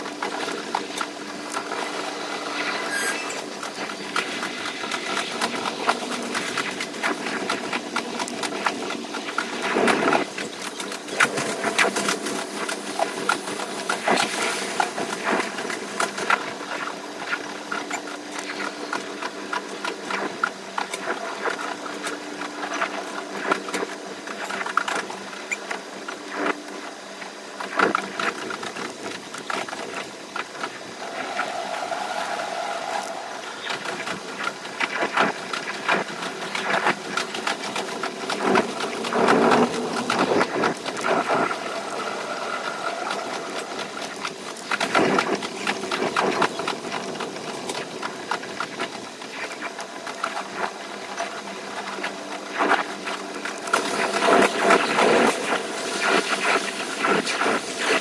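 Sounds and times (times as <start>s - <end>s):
train rattling clicks: 3.4s - 16.8s, 27.6s - 58.0s
train motor whine: 30.6s - 35.3s.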